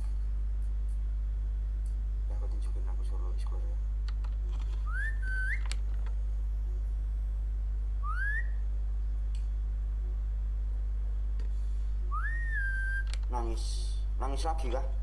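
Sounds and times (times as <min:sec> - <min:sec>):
steady low hum: 0:00.0 - 0:15.0
short rising whistles: 0:04.8 - 0:05.6, 0:08.0 - 0:08.6, 0:12.1 - 0:13.1.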